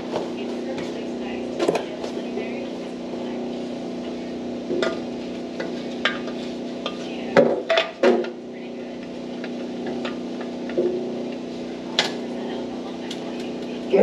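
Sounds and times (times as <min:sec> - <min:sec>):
steady hum: 0:00.0 - 0:14.0
metal exhaust pipe knocking: 0:04.7 - 0:08.4.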